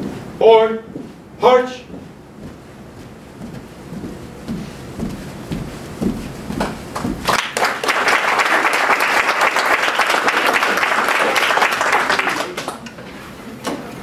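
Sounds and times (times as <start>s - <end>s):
audience applauding: 7.2s - 12.9s.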